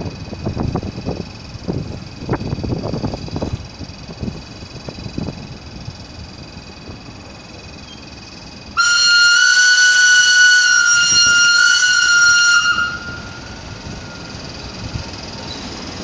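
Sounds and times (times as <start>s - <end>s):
locomotive horn blast: 8.8s - 14.5s.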